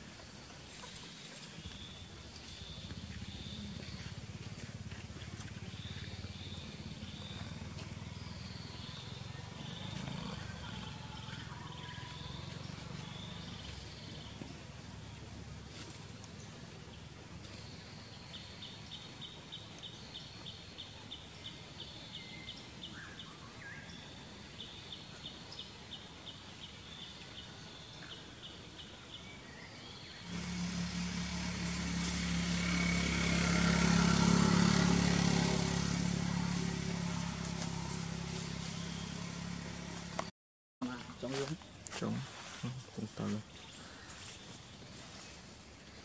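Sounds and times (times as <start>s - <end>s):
vehicle engine passing by: 1.6s - 19.8s, 30.2s - 40.3s.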